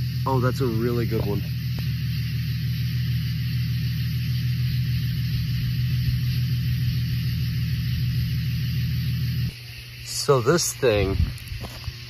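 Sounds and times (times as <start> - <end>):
vehicle engine idling: 0.0 - 9.6
steady hiss: 0.0 - 12.0.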